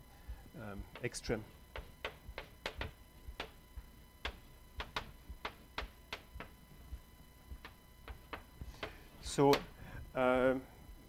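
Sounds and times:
chalk tapping on blackboard: 0:00.9 - 0:03.6, 0:04.2 - 0:06.6, 0:07.6 - 0:09.7.

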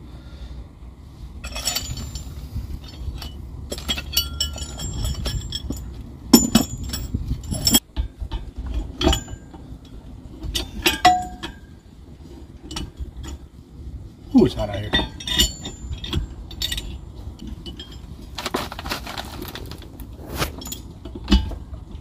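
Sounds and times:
metal parts clinking: 0:01.4 - 0:11.8, 0:14.4 - 0:19.9.

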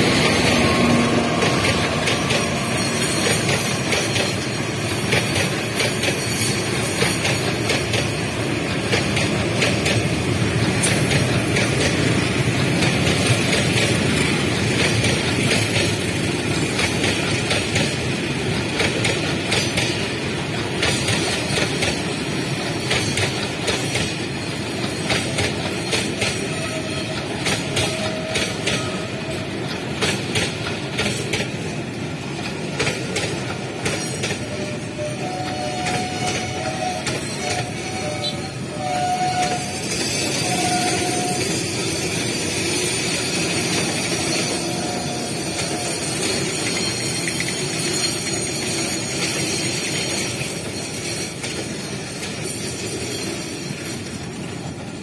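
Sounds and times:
steel wheels rumbling on track: 0:00.0 - 0:55.0
wheels clicking over rail joints: 0:00.2 - 0:39.7.

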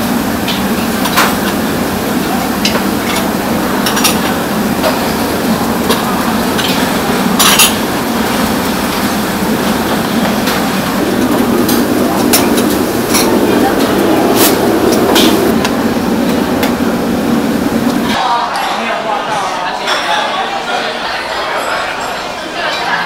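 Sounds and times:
kitchen equipment running: 0:00.0 - 0:18.2
dishes and utensils clinking: 0:02.6 - 0:15.5.

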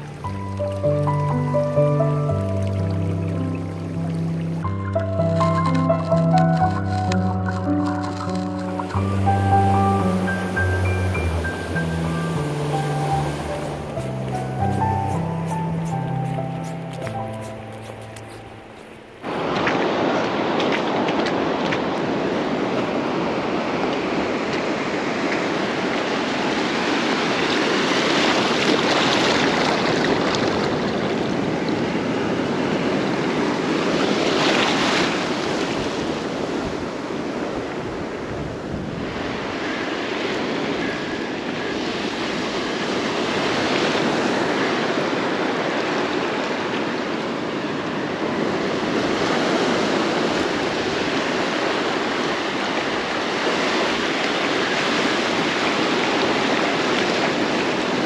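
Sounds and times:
ocean surf washing over sand: 0:00.0 - 0:58.0.

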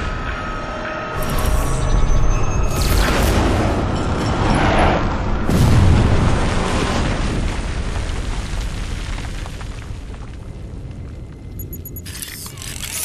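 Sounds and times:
film score: 0:00.0 - 0:07.4
deep explosion booms: 0:05.0 - 0:10.9.

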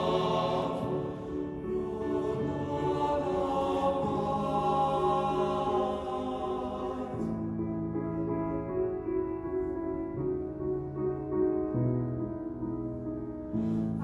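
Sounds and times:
men's chorus singing: 0:00.0 - 0:07.5
piano accompaniment: 0:00.0 - 0:14.0.

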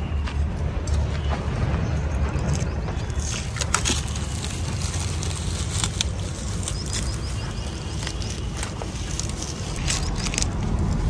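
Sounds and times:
steady low rumble: 0:00.1 - 0:11.0
garland crinkling and rustling: 0:03.0 - 0:11.0.

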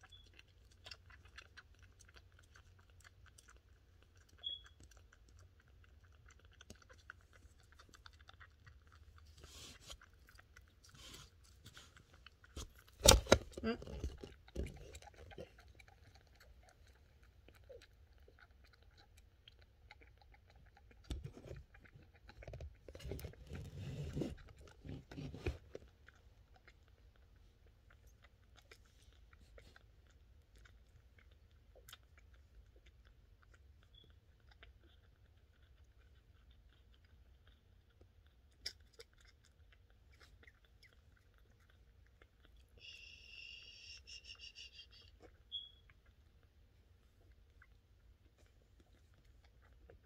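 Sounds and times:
kitten nursing sucking: 0:00.0 - 0:50.0
rustling: 0:06.6 - 0:17.2.

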